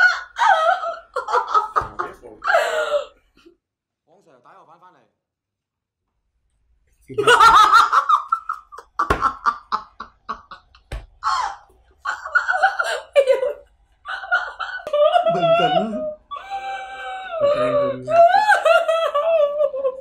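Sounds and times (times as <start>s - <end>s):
woman laughing loudly: 0.0s - 3.1s, 7.2s - 17.5s.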